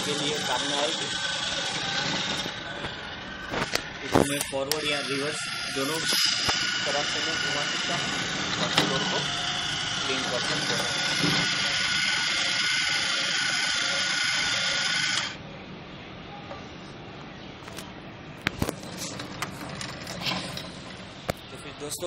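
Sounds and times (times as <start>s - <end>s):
motor whining: 0.0s - 15.4s.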